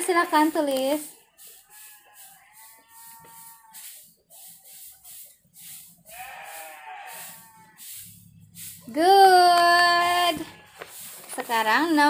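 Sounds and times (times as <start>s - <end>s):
animal bleating: 1.5s - 3.8s, 6.1s - 7.9s, 9.8s - 11.1s.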